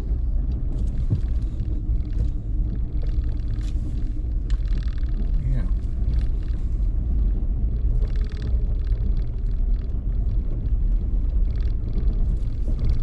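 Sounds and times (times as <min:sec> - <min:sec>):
truck engine and tyres rumbling: 0:00.0 - 0:13.0
short rattles or squeaks: 0:07.8 - 0:10.0.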